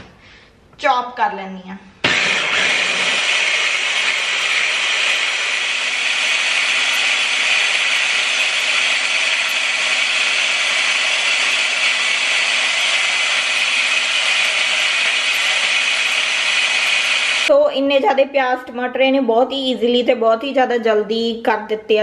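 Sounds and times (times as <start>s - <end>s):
hand blender motor chopping: 2.0s - 17.5s.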